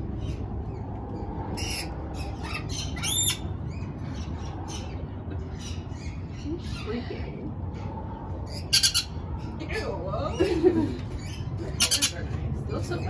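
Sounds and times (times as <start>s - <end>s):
birds squawking: 1.6s - 9.6s, 11.1s - 12.3s.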